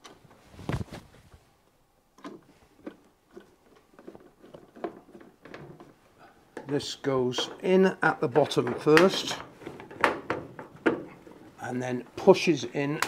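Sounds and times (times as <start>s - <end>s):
plastic parts knocking and clicking: 2.2s - 11.5s.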